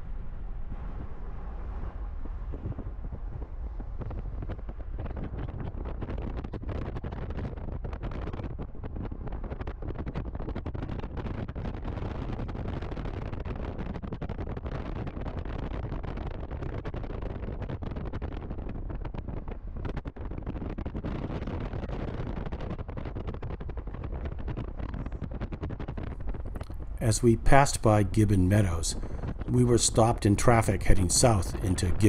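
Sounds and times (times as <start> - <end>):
wind buffeting microphone: 0.0 - 32.0
road noise rumble: 26.2 - 32.0.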